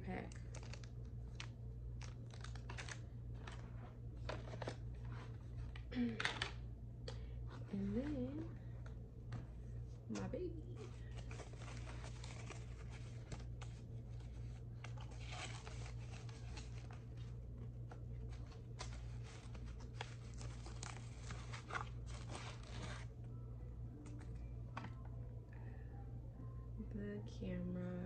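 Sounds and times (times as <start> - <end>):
paper and plastic crinkling: 0.1 - 6.6, 10.1 - 23.2.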